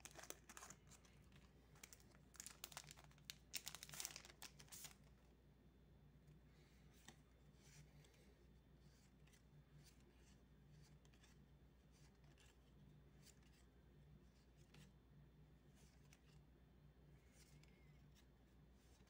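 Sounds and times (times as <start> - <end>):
cards sliding with soft swishes: 6.3 - 16.5, 17.1 - 19.0.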